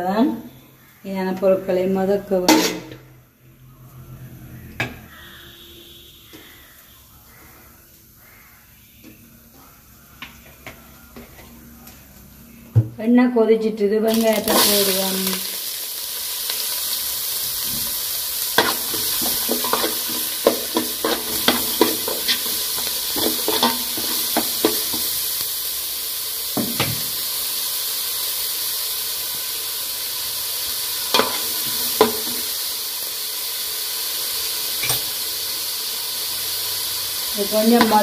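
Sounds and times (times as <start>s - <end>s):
onions sizzling in oil: 14.1s - 38.0s.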